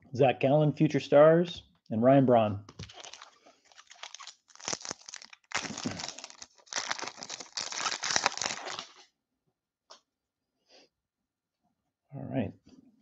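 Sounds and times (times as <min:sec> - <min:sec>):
foil wrapper crinkling and tearing: 0:02.8 - 0:09.0.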